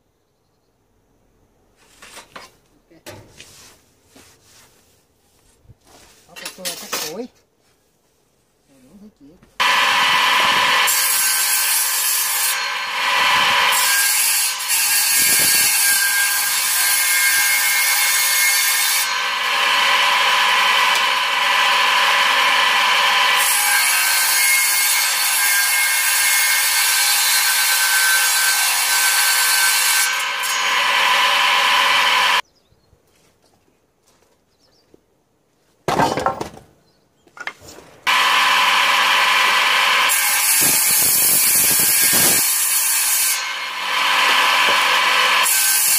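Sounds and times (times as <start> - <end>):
table saw cutting wood: 9.6 - 32.4, 38.1 - 45.9.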